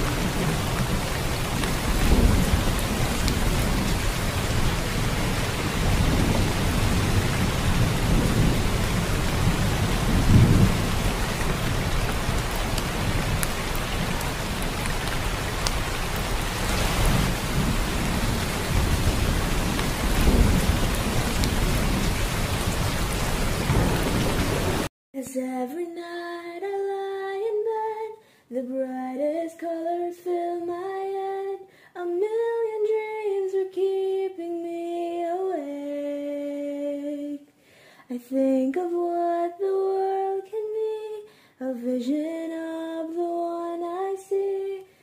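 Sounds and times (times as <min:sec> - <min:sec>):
heavy rain falling: 0:00.0 - 0:24.9
low rumbles of thunder: 0:00.0 - 0:24.9.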